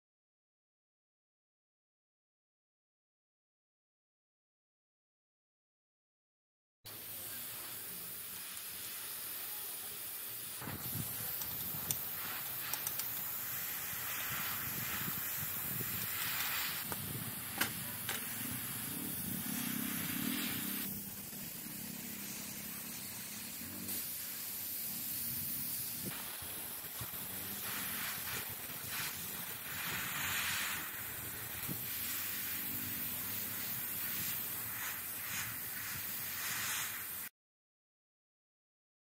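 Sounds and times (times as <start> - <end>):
airbrush hissing: 6.9 - 37.3.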